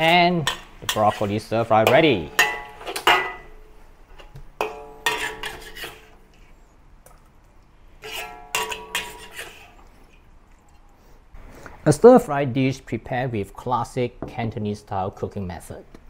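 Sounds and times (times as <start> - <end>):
metal spatula clanging on wok: 0.0 - 3.6, 4.6 - 6.0, 8.0 - 9.6.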